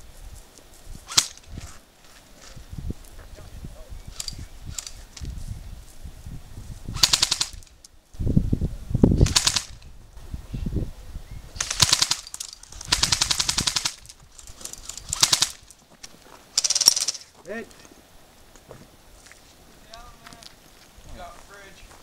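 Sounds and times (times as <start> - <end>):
airsoft guns firing bursts: 7.0 - 7.6, 9.2 - 9.8, 11.6 - 14.1, 15.1 - 15.6, 16.6 - 17.2.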